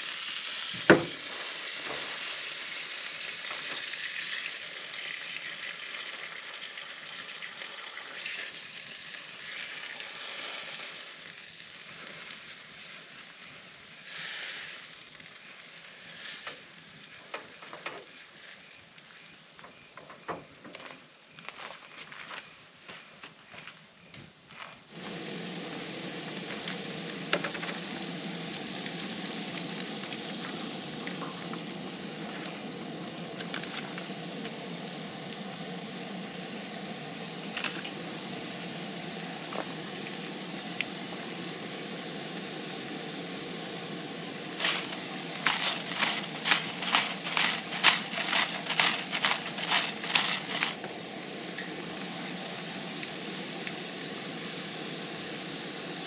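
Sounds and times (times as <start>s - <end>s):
meat sizzling in a skillet: 0.0s - 18.8s, 24.9s - 56.0s
spice jar shaking: 44.6s - 50.8s.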